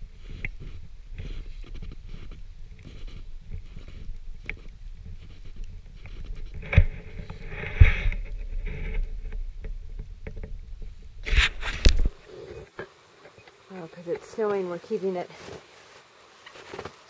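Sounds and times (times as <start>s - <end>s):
microphone handling rumble: 0.0s - 12.7s
sharp thumps: 5.8s - 13.4s
footsteps crunching through snow: 14.3s - 17.0s.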